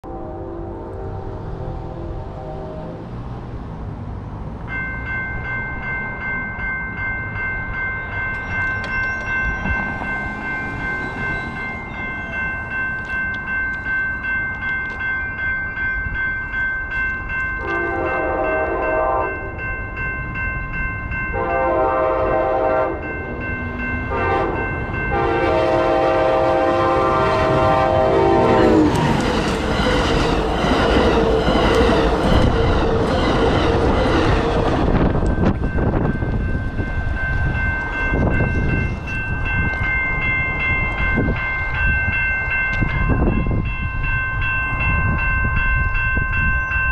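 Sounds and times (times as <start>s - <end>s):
train wheel and rail noise: 0.0s - 46.9s
railroad crossing bells ringing: 4.3s - 46.9s
train air horn blasts: 17.6s - 19.5s, 21.3s - 23.1s, 24.1s - 29.0s.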